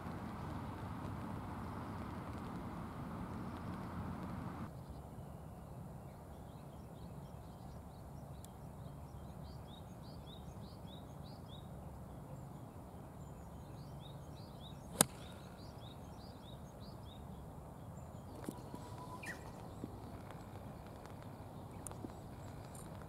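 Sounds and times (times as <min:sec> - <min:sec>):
birds chirping: 0:06.4 - 0:23.0
golf club striking ball: 0:14.9 - 0:15.5.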